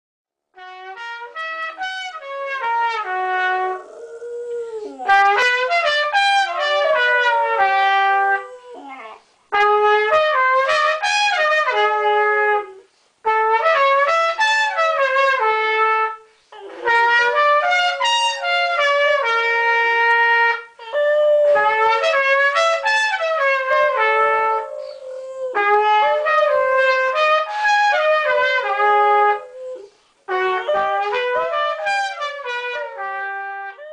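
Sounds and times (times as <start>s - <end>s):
trumpet playing held notes: 0.6s - 8.8s, 9.5s - 33.9s
dog howling: 3.4s - 5.5s, 6.4s - 9.2s, 16.6s - 20.0s, 20.8s - 33.9s.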